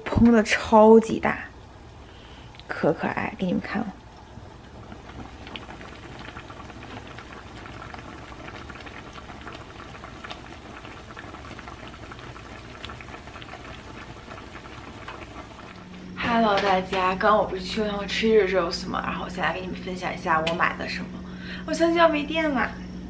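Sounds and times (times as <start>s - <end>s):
pot bubbling and popping: 0.0s - 16.0s.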